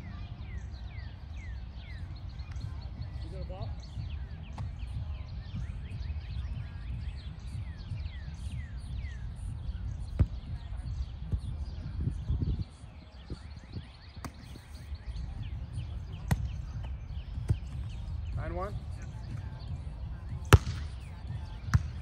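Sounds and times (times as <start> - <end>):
volleyball being struck: 20.5 - 20.9.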